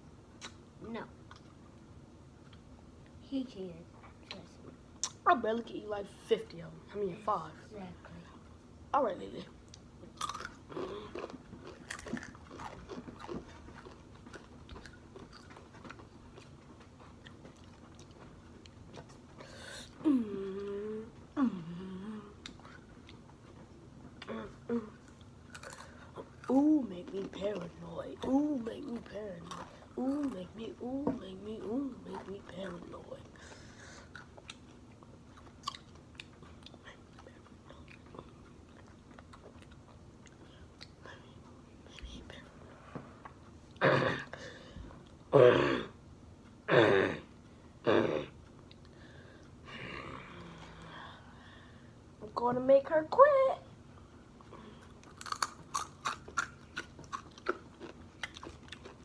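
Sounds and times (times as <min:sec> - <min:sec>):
chewing crunchy chips: 0:09.7 - 0:20.0, 0:22.4 - 0:30.4, 0:34.0 - 0:41.1, 0:54.4 - 0:59.0
crunching of tortilla chips: 0:10.2 - 0:19.2, 0:25.1 - 0:26.5, 0:54.9 - 0:59.0.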